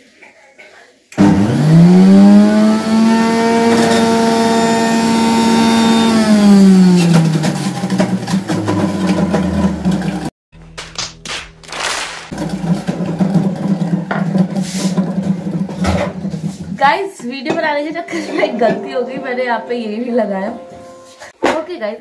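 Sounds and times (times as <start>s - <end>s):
juicer motor whining: 1.2s - 10.3s, 12.3s - 16.8s
juicer parts rattling: 3.3s - 10.3s, 12.3s - 16.8s.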